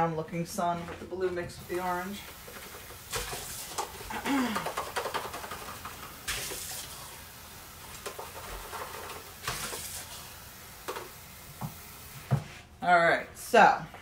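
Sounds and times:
water running and splashing: 1.2s - 12.4s.

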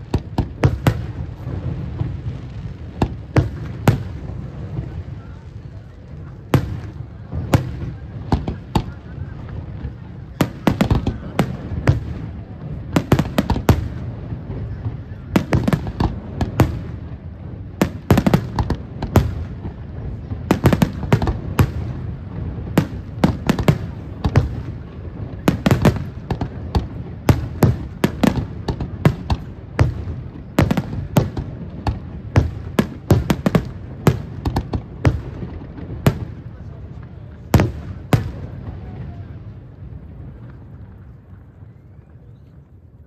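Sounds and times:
fireworks bursting with sharp bangs: 0.0s - 43.0s.

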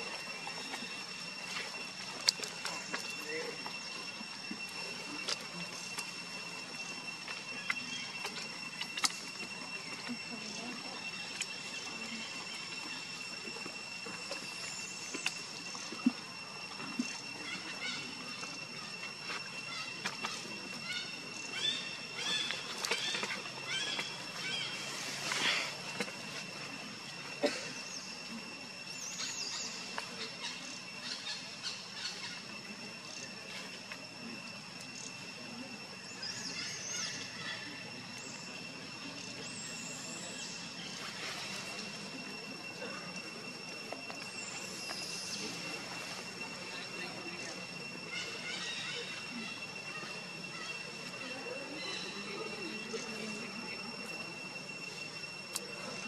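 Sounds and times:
high-pitched insect drone: 0.0s - 56.0s.

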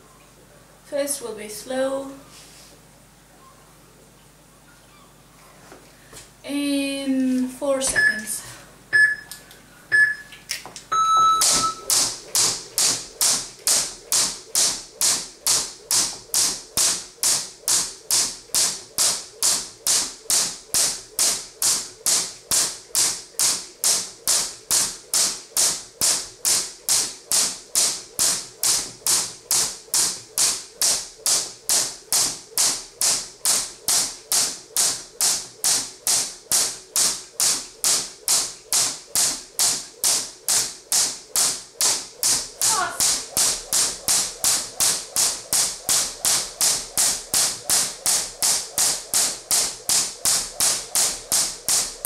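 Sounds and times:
timer beeps: 7.9s - 10.3s, 10.9s - 12.0s
jump rope slapping floor: 10.6s - 52.0s.

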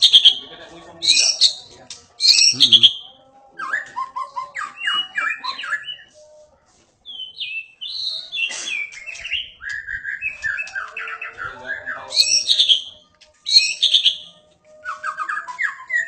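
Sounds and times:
songbird whistling: 2.2s - 3.0s, 7.1s - 16.0s.

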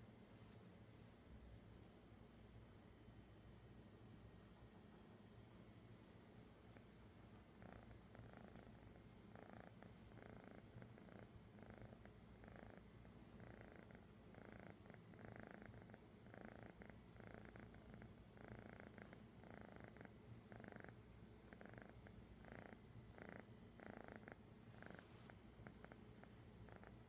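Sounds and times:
kitten purring: 6.6s - 27.0s.

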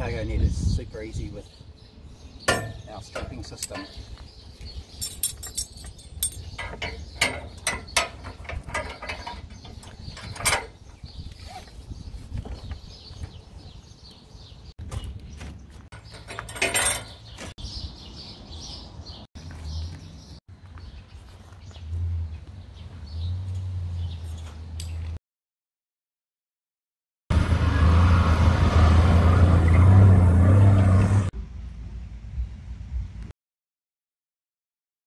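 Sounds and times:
straps pulled through buckles: 5.0s - 11.8s
strap rasping through buckle: 11.3s - 11.8s.

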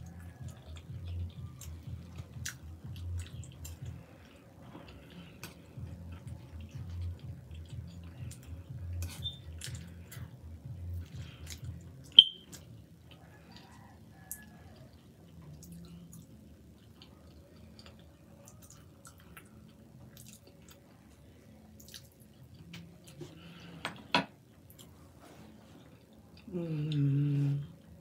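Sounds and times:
close chewing of food: 0.0s - 23.8s.

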